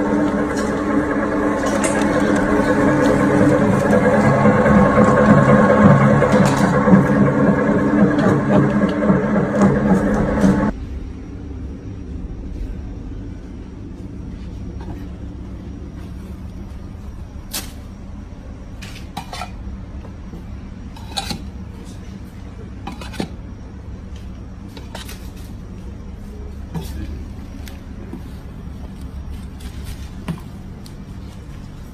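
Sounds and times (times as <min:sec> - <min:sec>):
meat grinder motor humming: 0:00.0 - 0:10.7.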